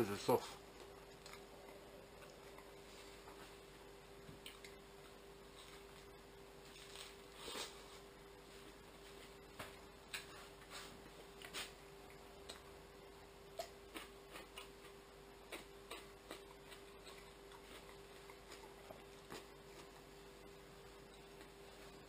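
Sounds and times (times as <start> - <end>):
faint steady hum: 0.0 - 22.0
man chewing with mouth clicks: 0.8 - 3.4, 4.3 - 6.1, 10.1 - 22.0.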